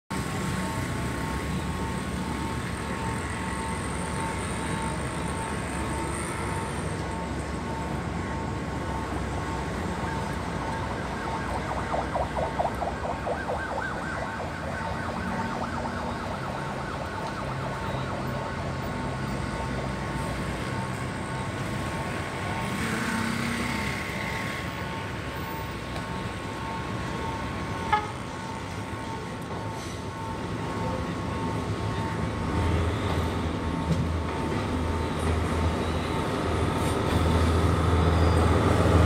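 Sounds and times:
city street traffic: 0:00.1 - 0:39.0
siren-like warbling: 0:10.0 - 0:18.7.

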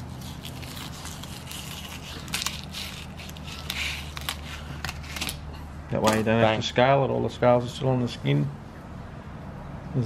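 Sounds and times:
knife scraping fish skin: 0:00.0 - 0:05.2.

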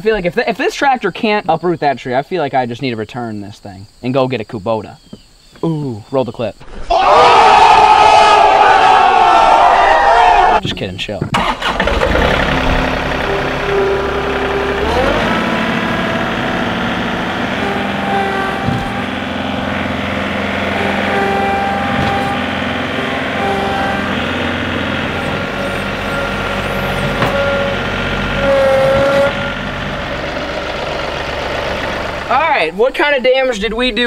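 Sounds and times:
whining tones: 0:06.7 - 0:32.8
tractor diesel engine under load: 0:10.3 - 0:34.0.

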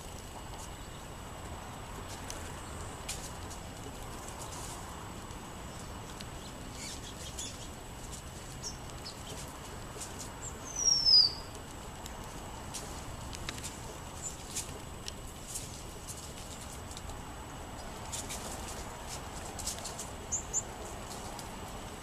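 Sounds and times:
soft scattered ticks: 0:00.0 - 0:22.0
songbird high descending call: 0:10.6 - 0:11.5.

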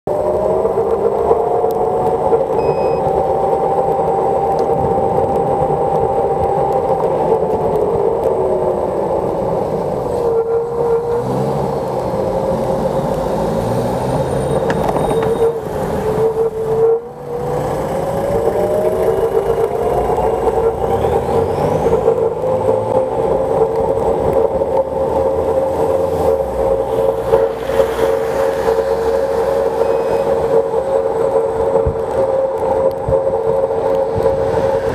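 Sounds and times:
wind and tyre noise: 0:00.0 - 0:34.9
electric scooter motor whine: 0:14.6 - 0:25.2.

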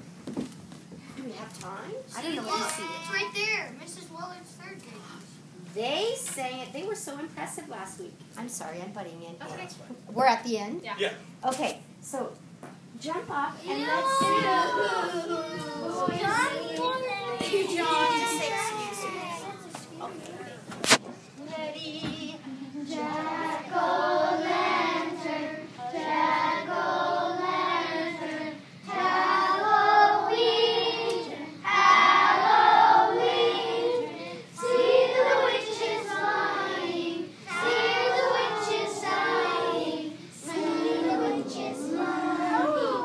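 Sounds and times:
children singing together: 0:21.8 - 0:43.0.

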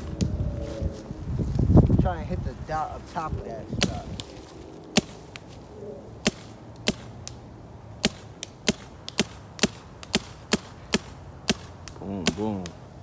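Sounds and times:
paintball marker firing pops: 0:06.2 - 0:07.4, 0:08.0 - 0:12.8.

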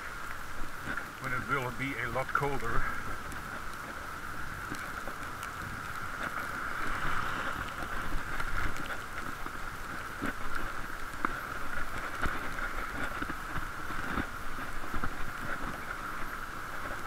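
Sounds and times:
wind and tyre rumble: 0:00.0 - 0:17.0.

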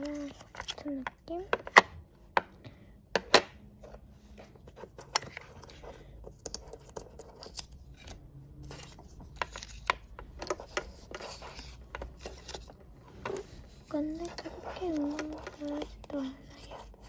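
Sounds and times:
paper stickers rustling: 0:00.0 - 0:01.4, 0:03.9 - 0:17.0.

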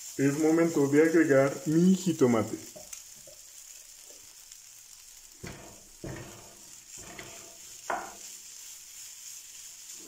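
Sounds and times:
food sizzling in a frying pan: 0:00.0 - 0:10.0
wooden spoon knocking and scraping: 0:05.4 - 0:08.3.

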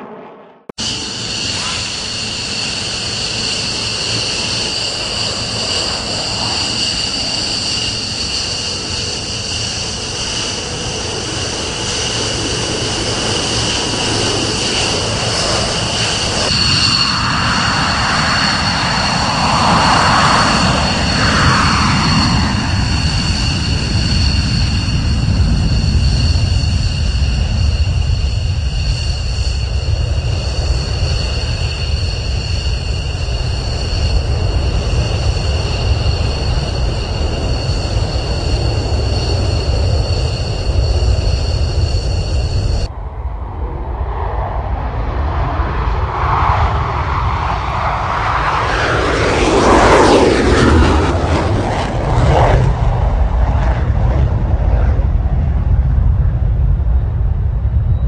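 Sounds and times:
deep jet engine rumble: 0:00.0 - 0:58.0
jet engines whining: 0:00.0 - 0:58.0
jet passing by: 0:00.0 - 0:58.0.

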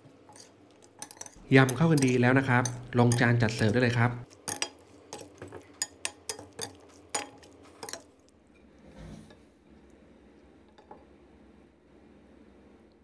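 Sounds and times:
utensils clinking against metal bowl: 0:00.0 - 0:08.2.

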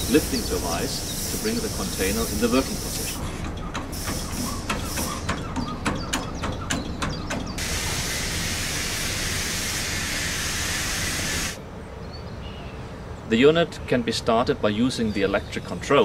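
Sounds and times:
hydraulic hiss: 0:00.0 - 0:05.4, 0:07.6 - 0:11.6.

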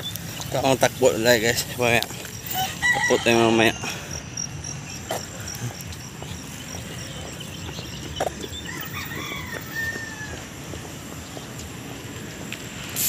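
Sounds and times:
rooster crowing: 0:02.5 - 0:04.5, 0:08.5 - 0:10.5
steady low rumble: 0:03.9 - 0:13.0.

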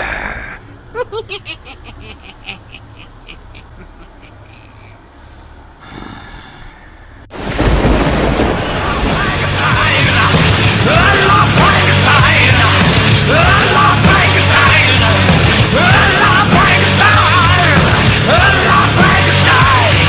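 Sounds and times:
man laughing: 0:00.0 - 0:05.4
loud heavy metal music: 0:08.8 - 0:20.0.

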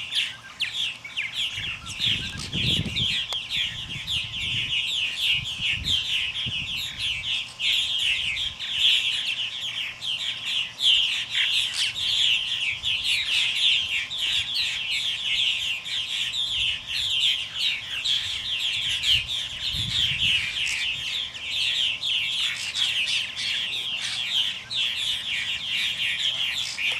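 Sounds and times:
flock of birds chattering: 0:00.0 - 0:26.9.

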